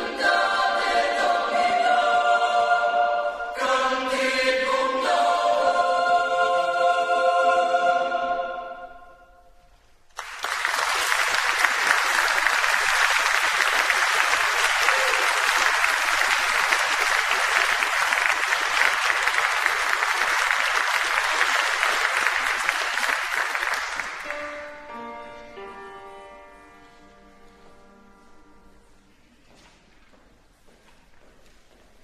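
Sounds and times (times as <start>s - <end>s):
choir singing a chord: 0.0s - 9.5s
audience applause: 10.1s - 24.6s.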